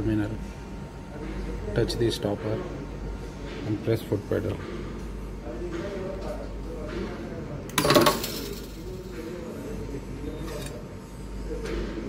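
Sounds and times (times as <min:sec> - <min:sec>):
crimping machine metallic clack: 0:07.8 - 0:09.0.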